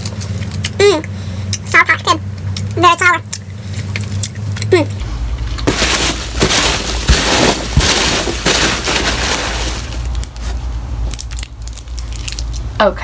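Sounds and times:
rustling of foam packing peanuts: 5.6 - 10.6.

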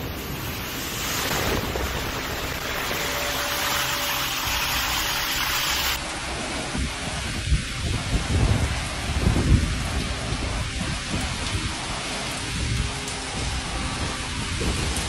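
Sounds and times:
heavy rain: 0.0 - 15.0
pouring rain: 0.0 - 15.0
wind rumble on microphone: 6.0 - 15.0.

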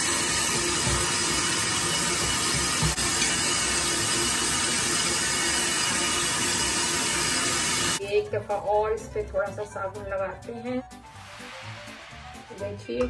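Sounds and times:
tap water running into sink: 0.0 - 8.0.

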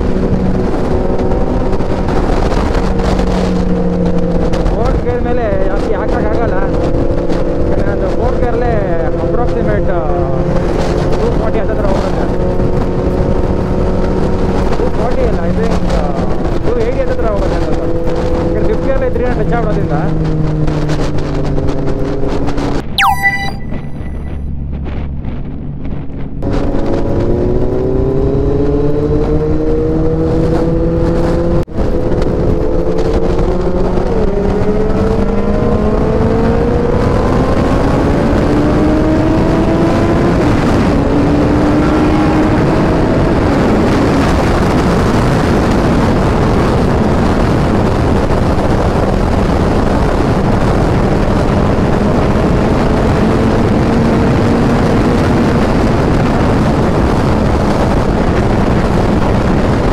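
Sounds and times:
motorcycle engine accelerating: 0.0 - 22.8, 24.6 - 59.9
wind rush: 24.1 - 59.9.

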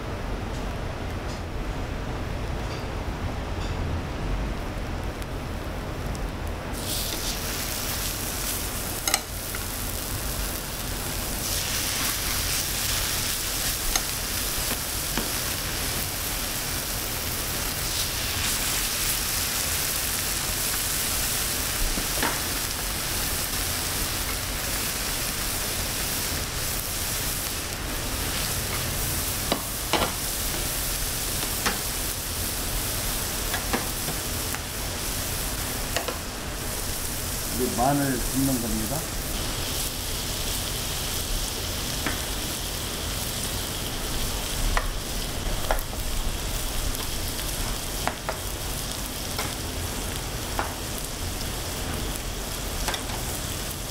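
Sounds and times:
meat sizzling on a griddle: 6.7 - 53.9
metal tongs clicking on plate: 9.0 - 9.3.

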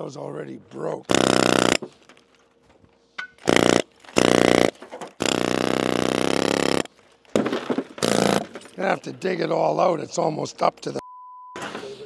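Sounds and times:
air hammer chattering on rock: 1.1 - 2.1, 3.2 - 11.0.

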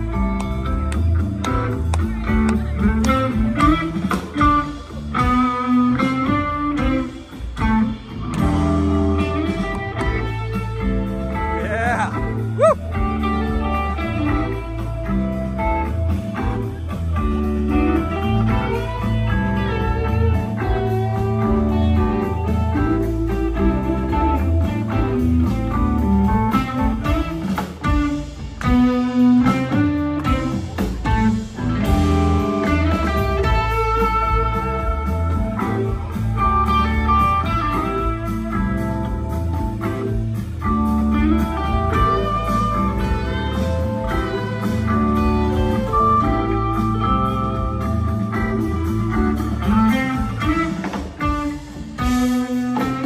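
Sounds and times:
electric guitars: 0.0 - 53.0
live rock band playing: 0.0 - 53.0.

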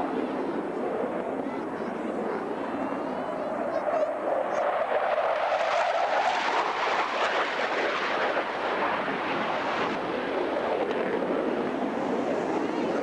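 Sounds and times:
jet engine roar: 0.0 - 13.0.

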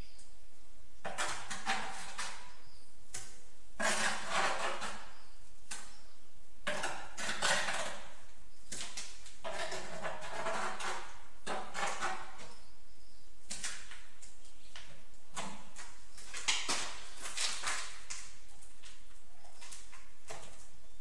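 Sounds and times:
tiles scraping and clinking: 9.4 - 12.4.

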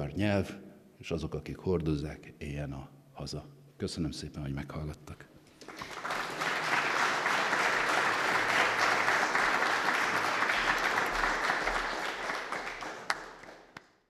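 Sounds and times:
audience applauding: 5.6 - 14.0.

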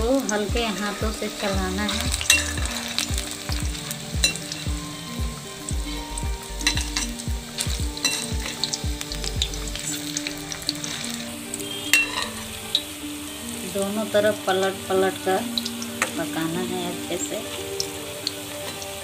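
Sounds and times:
food deep-frying in sizzling oil: 0.0 - 19.0.

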